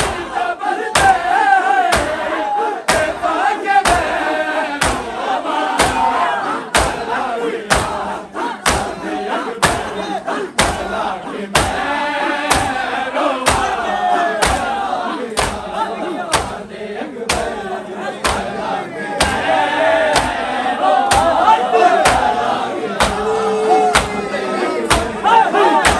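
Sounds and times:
men chanting a lament: 0.0 - 25.9
hands striking chests: 6.7 - 7.0, 10.6 - 10.9, 11.5 - 13.8, 14.4 - 15.7, 16.3 - 16.6, 17.3 - 17.6, 18.2 - 18.5, 19.2 - 20.5, 21.1 - 22.4, 23.0 - 23.3, 23.9 - 24.2, 24.8 - 25.2.

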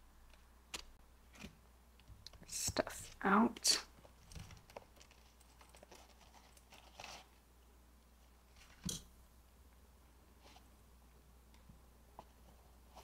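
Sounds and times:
wallet rustling: 4.0 - 7.4.

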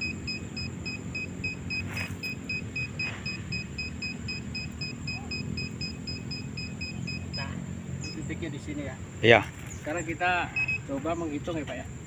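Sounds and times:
water detector beeping: 0.0 - 8.3, 10.5 - 11.0.

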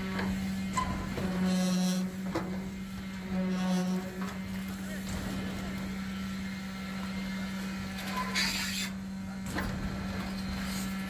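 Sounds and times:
concrete vibrator humming: 0.0 - 11.0.

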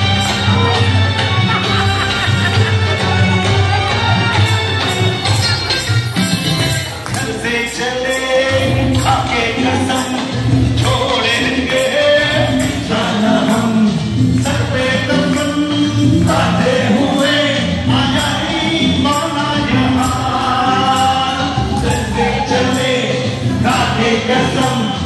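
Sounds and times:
person singing: 0.0 - 25.0
quick percussion beat: 8.5 - 25.0.

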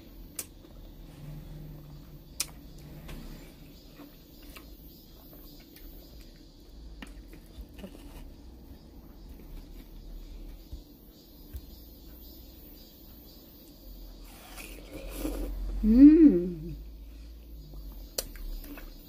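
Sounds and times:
chewing watermelon: 17.7 - 19.0.

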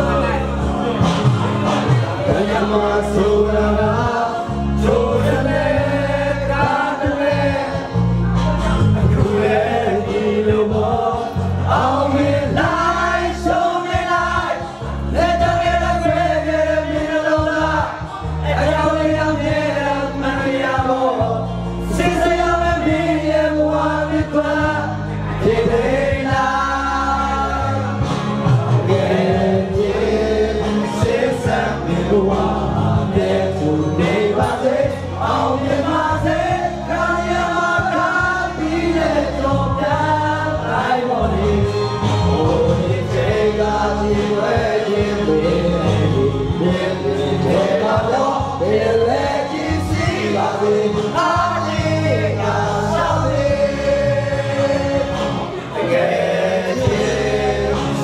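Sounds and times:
amplified backing music: 0.0 - 58.0
young men singing together: 0.0 - 58.0.

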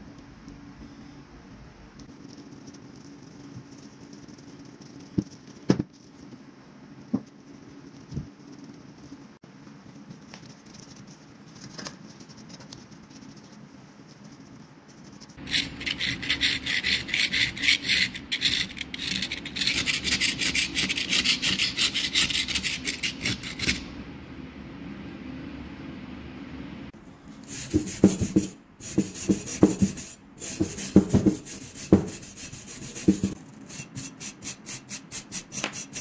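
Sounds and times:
abrasive rubbing on metal: 15.4 - 23.9, 27.5 - 36.0.

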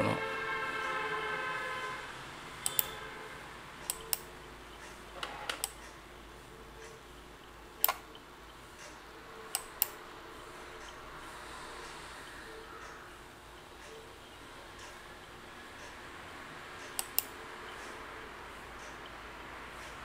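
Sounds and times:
computer mouse button clicking: 2.6 - 3.0, 16.8 - 17.3.

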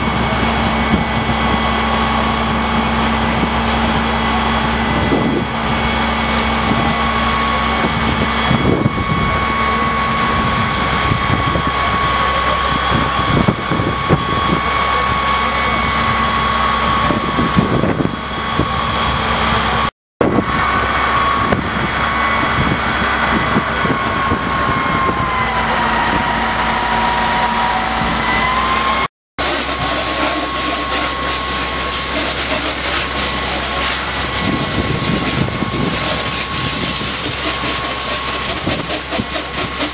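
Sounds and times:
high whine: 0.0 - 39.9
vehicle engine running: 28.8 - 39.9.

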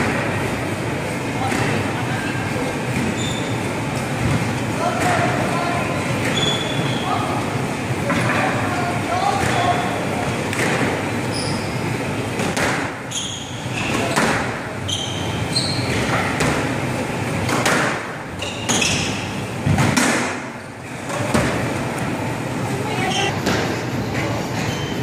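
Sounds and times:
shoes squeaking on wooden floor: 3.0 - 4.4, 6.2 - 7.2, 13.1 - 16.3, 18.4 - 19.4, 24.1 - 25.0
squash ball cracking off rackets: 12.4 - 13.0.

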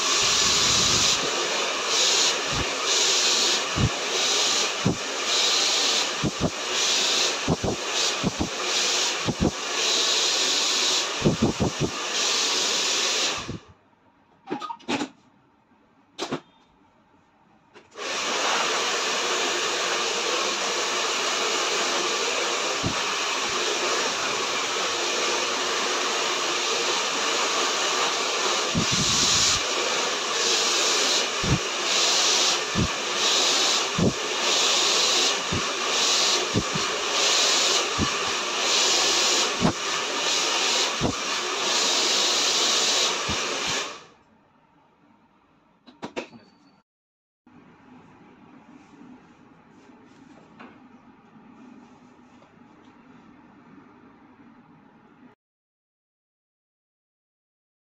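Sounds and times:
hair dryer blowing: 0.0 - 13.7, 17.9 - 44.1.

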